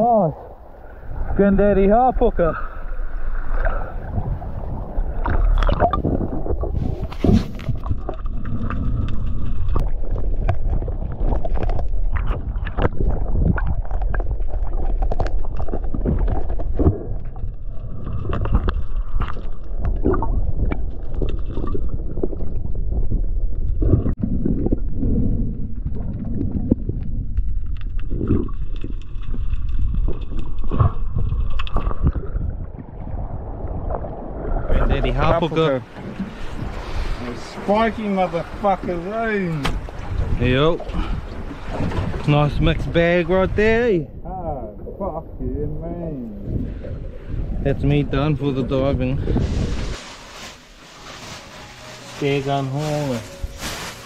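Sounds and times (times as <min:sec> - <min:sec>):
water sloshing and gurgling: 0:00.0 - 0:54.0.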